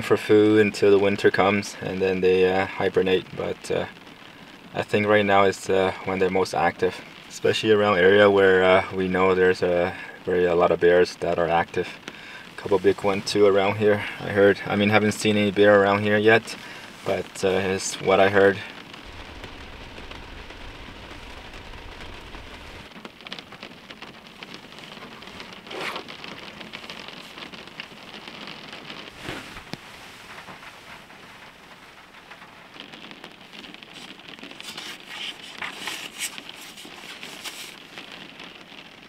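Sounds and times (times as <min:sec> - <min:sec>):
heavy rain pattering on a roof: 0:00.0 - 0:39.0
low rumble: 0:19.0 - 0:22.9.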